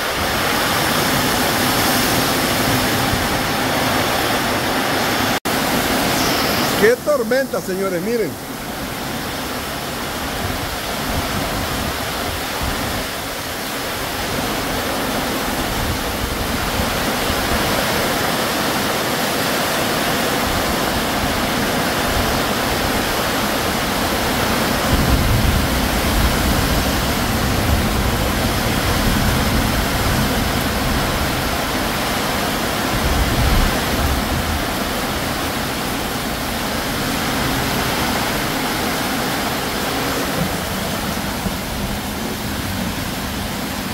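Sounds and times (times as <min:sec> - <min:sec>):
heavy rain on metal roof: 0:00.0 - 0:43.9
wind buffeting microphone: 0:08.5 - 0:18.2, 0:20.4 - 0:43.9.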